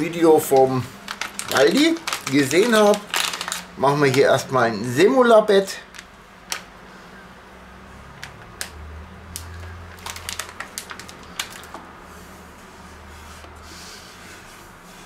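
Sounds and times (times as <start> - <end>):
paper packet crinkling: 0.0 - 4.9, 5.8 - 6.6, 9.4 - 11.8.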